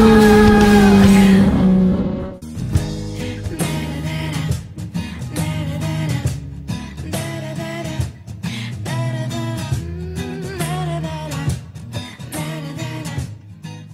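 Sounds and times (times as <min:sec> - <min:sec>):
song with guitar and singing: 0:00.0 - 0:13.9.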